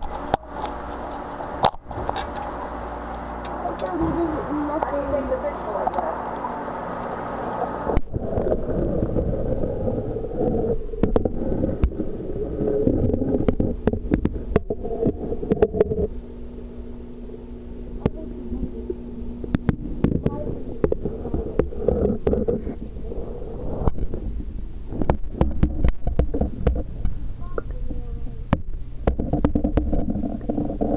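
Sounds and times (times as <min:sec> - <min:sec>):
muffled underwater rumble: 0:00.0 - 0:30.9
steady low hum: 0:00.0 - 0:30.9.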